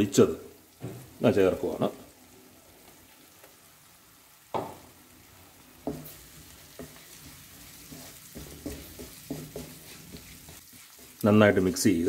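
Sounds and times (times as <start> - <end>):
faint sizzle: 0.0 - 12.0
wooden spatula stirring in pan: 4.5 - 12.0
spatula knocking against pan: 5.8 - 11.2.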